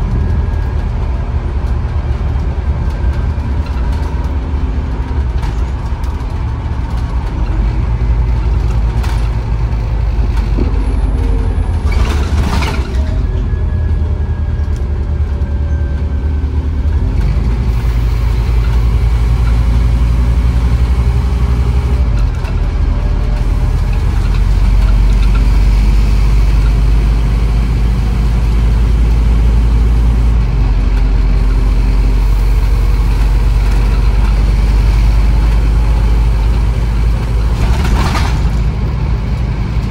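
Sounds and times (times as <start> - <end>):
bus diesel engine running: 0.0 - 39.9.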